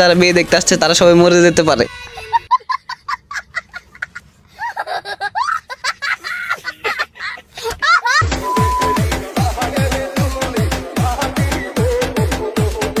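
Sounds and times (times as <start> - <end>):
boy squealing: 8.0 - 9.0.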